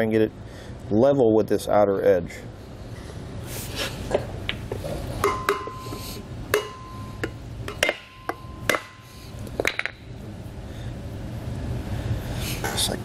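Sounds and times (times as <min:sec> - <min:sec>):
hammer tapping metal: 0:05.2 - 0:10.0.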